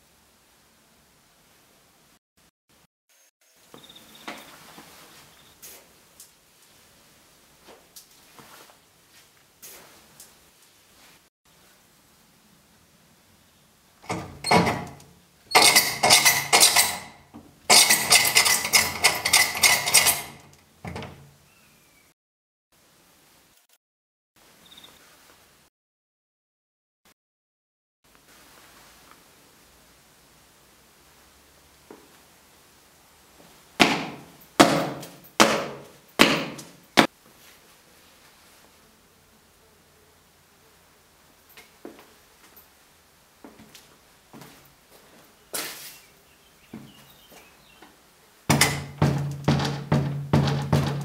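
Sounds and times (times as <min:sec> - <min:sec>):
hard objects rattling: 0:14.1 - 0:21.1, 0:48.5 - 0:51.0.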